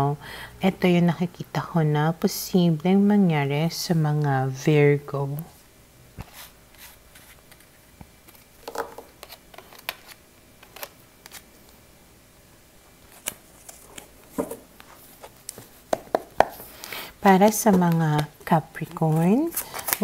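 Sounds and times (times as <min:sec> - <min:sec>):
cards clicking and tapping on wood: 0:15.5 - 0:16.6.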